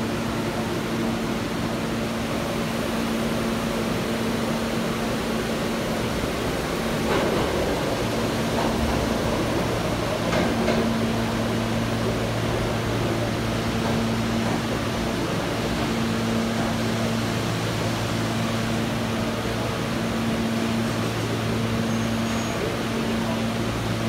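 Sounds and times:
subway train humming: 0.0s - 24.0s.

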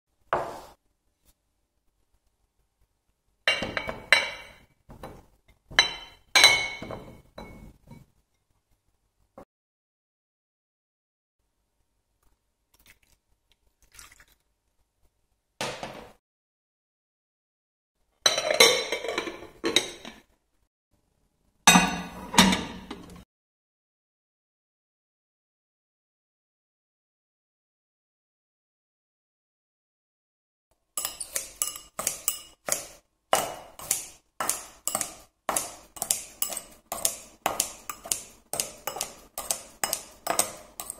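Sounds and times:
potatoes clinking against glass: 31.0s - 40.9s.

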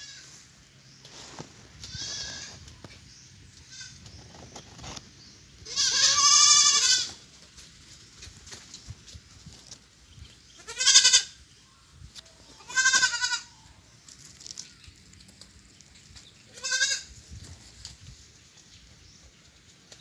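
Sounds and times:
goat kids bleating: 0.0s - 0.4s, 1.8s - 2.7s, 3.5s - 4.1s, 5.6s - 7.2s, 10.6s - 11.4s, 12.4s - 13.7s, 16.5s - 17.2s.

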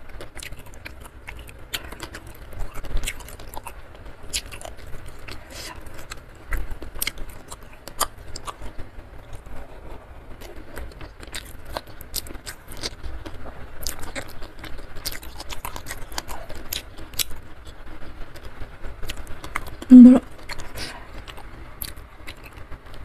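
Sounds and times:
chewing and crunching food: 0.0s - 23.0s.

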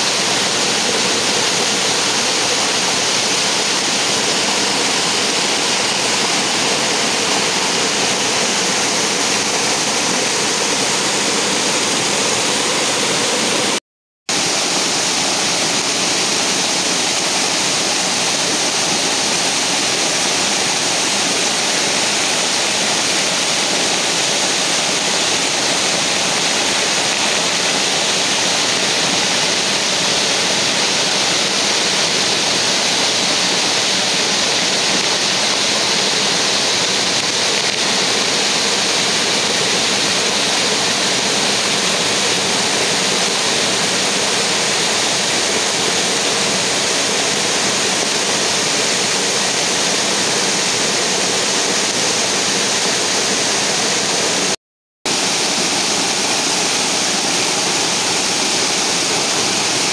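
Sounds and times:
waterfall rushing over rocks: 0.0s - 59.9s.

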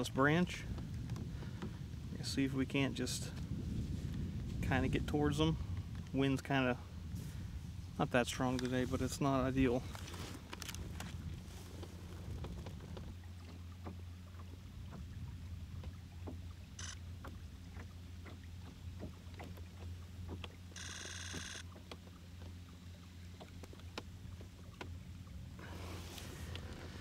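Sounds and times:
wind rumble on microphone: 0.0s - 20.5s
water drips and knocks: 12.4s - 16.5s, 17.2s - 20.6s.

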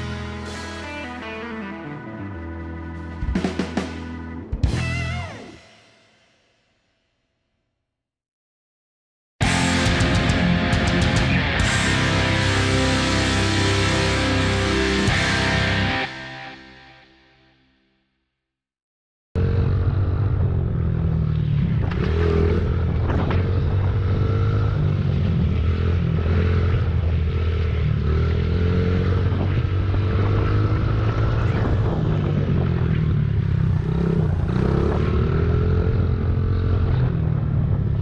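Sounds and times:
motorcycle engine running: 9.4s - 16.1s, 19.4s - 38.0s.

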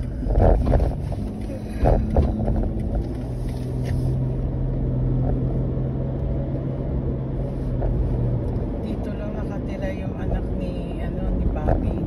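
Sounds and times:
car engine and road hum: 0.0s - 12.0s.

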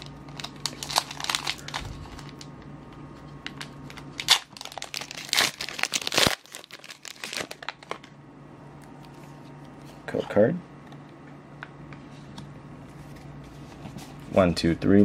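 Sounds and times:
foil wrapper crinkling and tearing: 0.0s - 2.5s, 3.4s - 8.1s.

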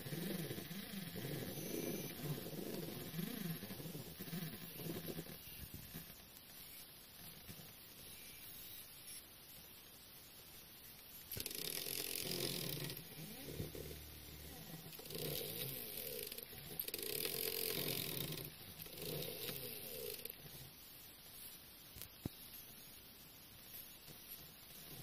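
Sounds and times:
stepper motors whining: 0.0s - 5.7s.

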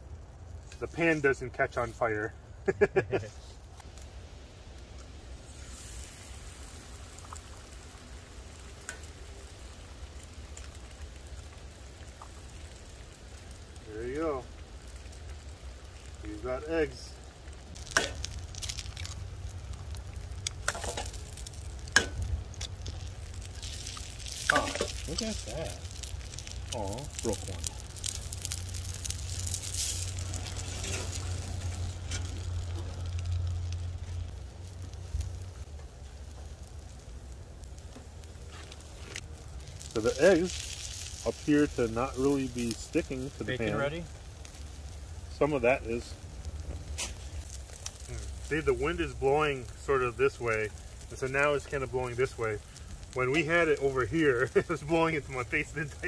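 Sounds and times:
fire crackling: 0.0s - 56.0s
low steady rumble: 0.0s - 56.0s
bacon sizzling in pan: 3.2s - 56.0s
low rumble: 17.0s - 40.0s.

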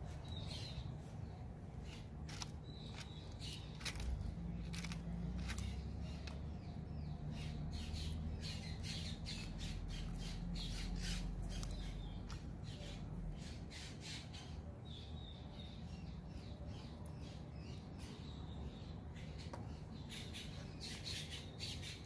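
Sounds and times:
tortoise crunching broccoli: 0.0s - 13.9s.

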